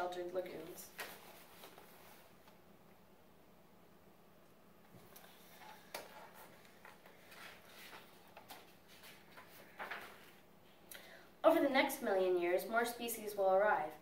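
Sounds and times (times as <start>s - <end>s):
book pages rustling: 0.6s - 2.6s, 4.9s - 10.5s.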